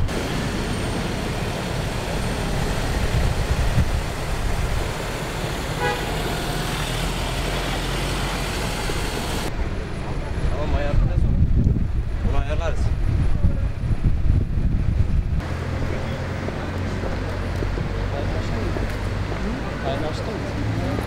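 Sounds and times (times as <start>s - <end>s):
truck engines and road noise: 0.0s - 21.0s
short horn toot: 5.8s - 6.4s.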